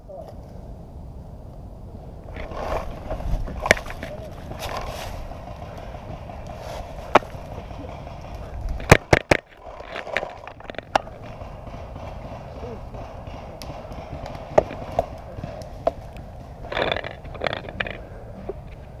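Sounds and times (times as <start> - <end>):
rustling over leaves and dirt: 0.0 - 13.0, 13.6 - 19.0
paintball markers firing pops: 3.6 - 12.2, 13.2 - 18.8.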